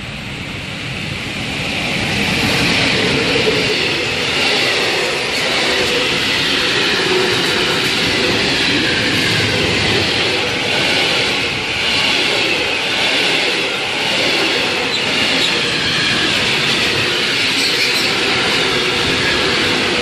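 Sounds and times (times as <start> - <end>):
freight train wheels rumbling: 0.0 - 20.0.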